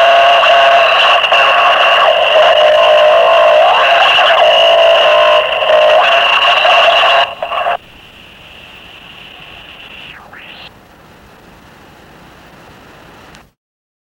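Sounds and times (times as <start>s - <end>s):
harsh distorted noise music: 0.0s - 10.7s
low steady hiss: 7.8s - 13.6s.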